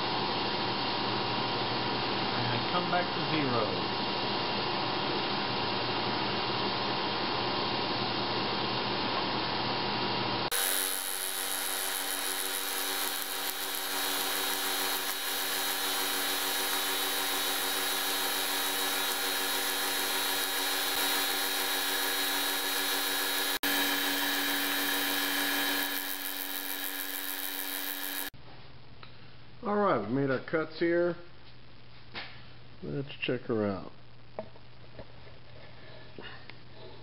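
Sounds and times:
milling machine spindle whine: 0:10.5 - 0:28.3.

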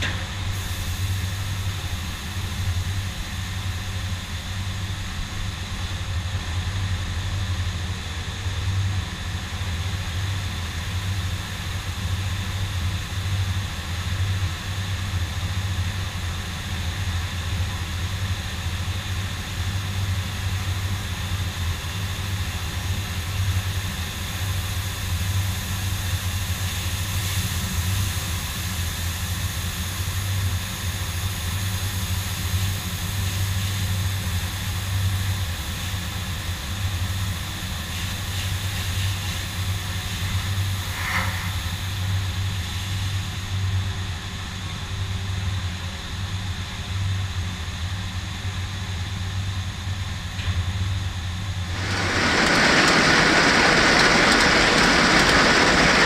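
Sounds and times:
combine harvester engine drone: 0:00.0 - 0:37.8, 0:39.7 - 0:56.0
faint steady whines: 0:46.0 - 0:56.0.

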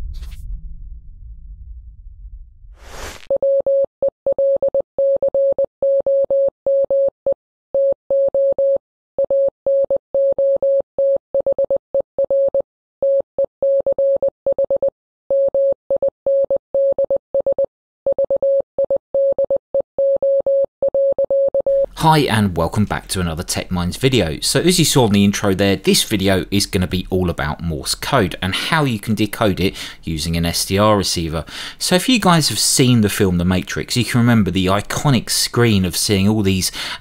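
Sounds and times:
brief whoosh: 0:00.0 - 0:03.3
morse code beeps: 0:03.3 - 0:07.1, 0:07.8 - 0:21.9.

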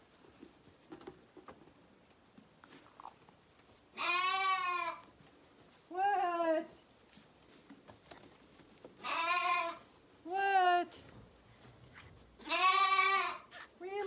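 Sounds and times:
lambs bleating: 0:04.0 - 0:05.1, 0:09.0 - 0:09.9, 0:12.4 - 0:13.7.

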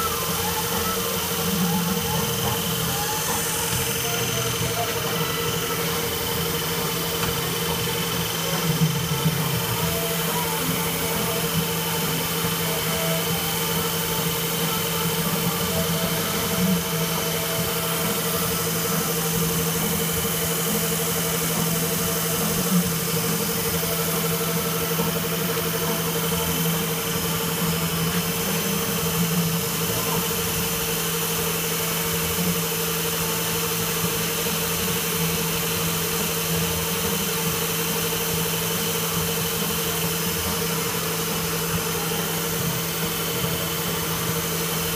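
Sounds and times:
grinder hum and whine: 0:00.0 - 0:44.9
grinding wheel hiss: 0:00.0 - 0:44.9.

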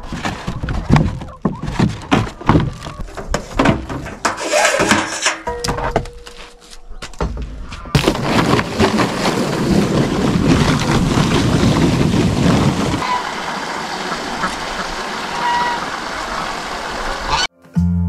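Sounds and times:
hose water splashing into pool: 0:08.2 - 0:17.5.

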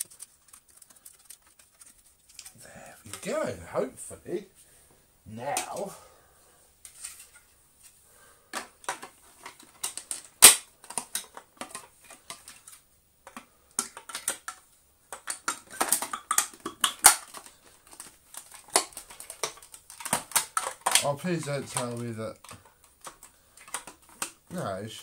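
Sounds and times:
plastic parts clicking and knocking: 0:00.0 - 0:03.4, 0:08.5 - 0:25.0.

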